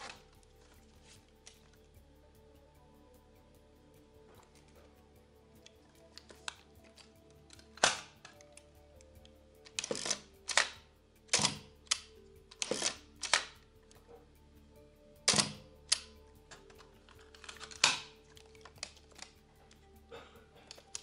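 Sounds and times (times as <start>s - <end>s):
quiet background music: 0.0s - 21.0s
camera mechanical clicks: 7.5s - 8.6s, 9.6s - 13.6s, 15.3s - 19.3s.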